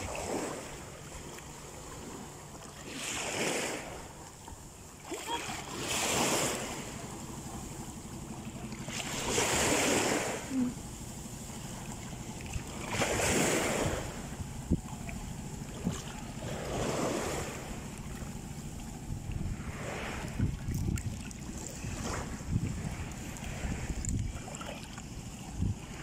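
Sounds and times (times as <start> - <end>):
wind on microphone: 0.0 - 0.9, 12.1 - 26.0
sea water swishing: 0.0 - 26.0.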